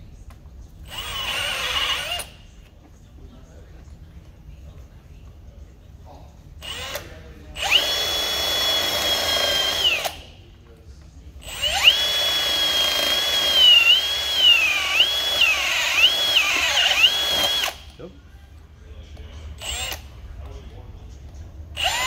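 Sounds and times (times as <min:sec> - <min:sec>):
cordless drill whine cutting metal: 0:00.9 - 0:02.3, 0:06.6 - 0:10.3, 0:11.4 - 0:17.9, 0:19.6 - 0:20.1, 0:21.8 - 0:22.0.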